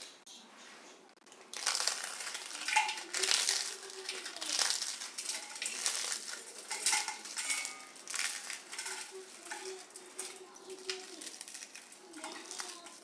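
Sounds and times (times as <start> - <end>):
chapatis crackling and crunching: 0.0 - 13.0
pieces rattling in steel bowl: 1.4 - 13.0.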